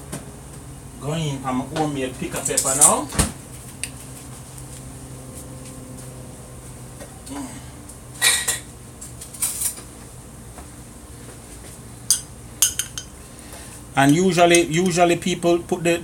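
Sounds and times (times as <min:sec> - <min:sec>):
low steady hum: 0:00.0 - 0:16.0
dishes and utensils clinking: 0:12.1 - 0:13.2.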